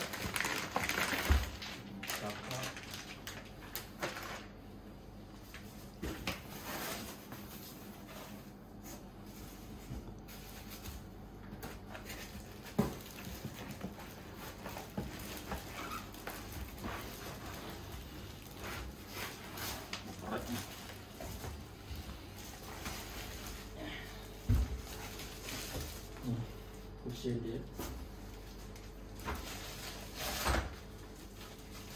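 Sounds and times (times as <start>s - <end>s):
plastic wrap crinkling: 0.0s - 4.6s, 9.3s - 31.9s.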